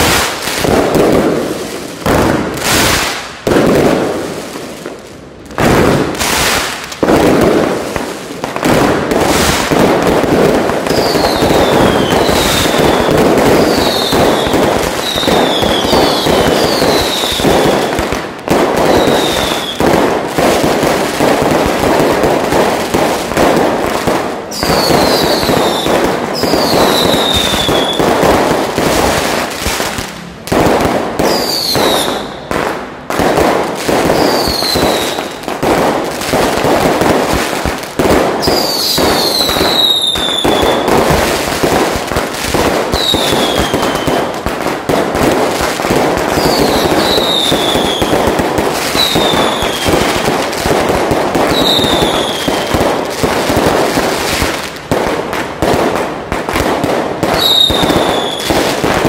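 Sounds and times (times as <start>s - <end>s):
firecrackers crackling bangs: 0.0s - 59.0s
falling firework whistle: 10.8s - 18.1s, 18.8s - 20.0s, 24.5s - 29.2s, 31.2s - 32.5s, 33.9s - 35.5s, 38.4s - 41.2s, 42.8s - 44.3s, 46.3s - 50.4s, 51.4s - 52.8s, 57.3s - 58.9s.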